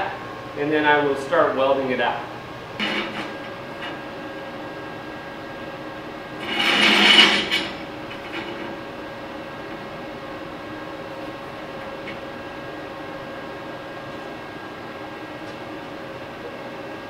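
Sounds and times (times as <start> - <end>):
steady background hum: 0.0 - 17.0
horseshoes sliding on steel table: 2.8 - 4.0, 6.4 - 8.8
metal scraping on metal: 2.8 - 4.1, 6.4 - 8.9.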